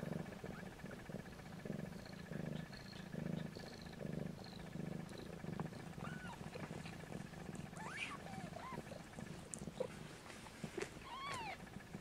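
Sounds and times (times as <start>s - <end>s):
cat purring: 0.0s - 12.0s
kittens squeaking: 5.7s - 10.0s, 10.8s - 11.7s.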